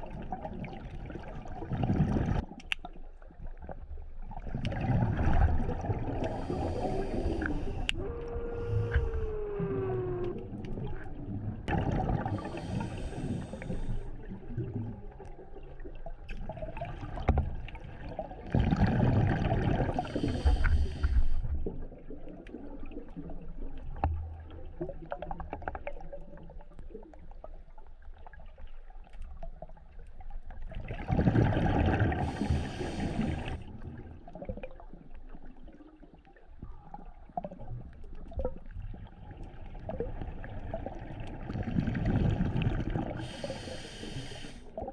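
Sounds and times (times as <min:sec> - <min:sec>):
low underwater gurgling: 0:00.0 - 0:02.6, 0:03.4 - 0:28.7, 0:29.4 - 0:44.9
breath bubbling underwater: 0:04.4 - 0:15.1, 0:18.0 - 0:23.4, 0:30.8 - 0:34.8, 0:39.9 - 0:44.9.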